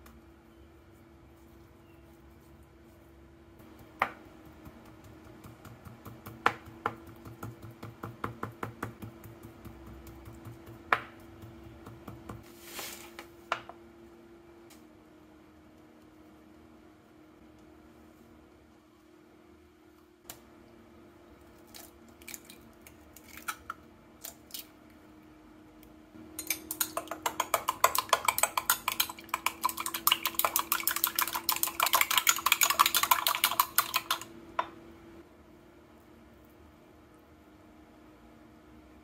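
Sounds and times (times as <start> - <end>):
eggs beaten in glass cup: 3.6 - 12.4, 26.3 - 34.7
utensil tapping glass: 26.4 - 34.7.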